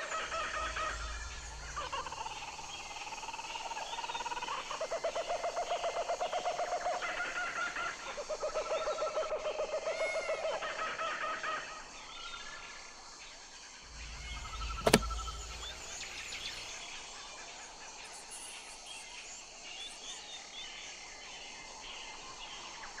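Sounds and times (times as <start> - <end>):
sharp click: 14.6 - 15.7.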